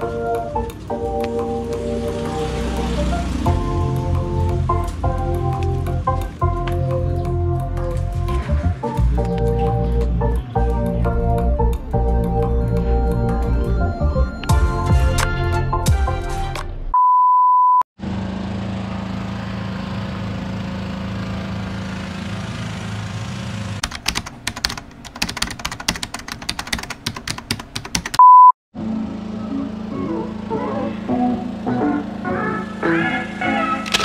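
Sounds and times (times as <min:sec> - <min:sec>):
electronic beep tone: 0:12.5 - 0:14.7, 0:17.0 - 0:17.8, 0:28.2 - 0:28.5
rapid clicks: 0:23.8 - 0:28.2.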